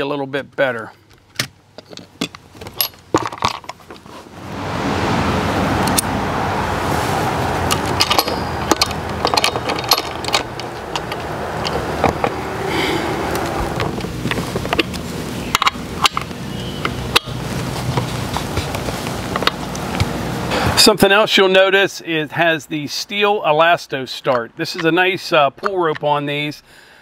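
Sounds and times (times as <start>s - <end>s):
saw chain clinking and rattling: 7.7s - 12.4s
sharp metallic clicks: 7.7s - 12.4s.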